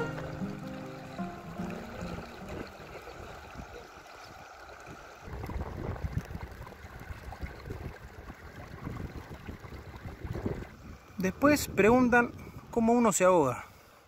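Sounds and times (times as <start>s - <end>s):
flowing river water: 0.0s - 14.0s
wind rumbling on microphone: 4.8s - 12.8s.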